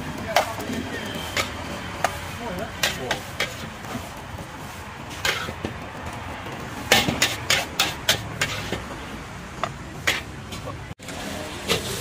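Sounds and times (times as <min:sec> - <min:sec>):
sharp spatula clacks: 0:00.2 - 0:03.6, 0:06.9 - 0:08.8
metal spatula scraping a wok: 0:00.4 - 0:05.6, 0:06.8 - 0:09.0, 0:10.0 - 0:12.0.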